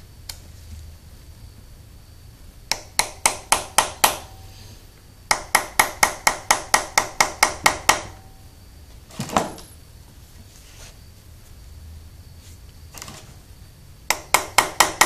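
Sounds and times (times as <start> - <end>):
hammer tapping metal: 2.7 - 4.5, 5.3 - 8.4, 14.1 - 15.0.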